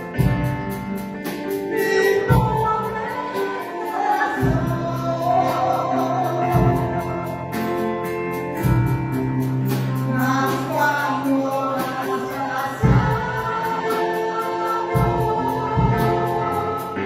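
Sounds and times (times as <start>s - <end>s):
bass drum striking: 0.0s - 1.1s
hymn with church band: 0.0s - 17.0s.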